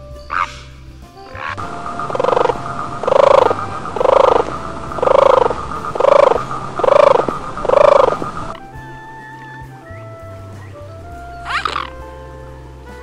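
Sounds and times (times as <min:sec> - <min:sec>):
short pulsing animal calls: 0:01.3 - 0:08.8, 0:11.4 - 0:12.0.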